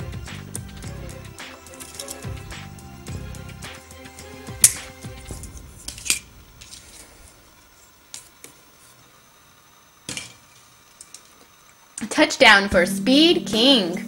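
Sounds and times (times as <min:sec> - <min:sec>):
background music: 0:00.0 - 0:06.6, 0:12.7 - 0:14.0.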